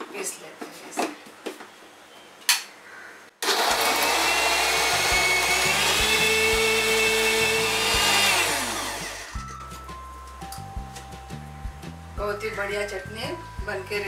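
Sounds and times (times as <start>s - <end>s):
mixer grinder whining: 3.4s - 9.4s.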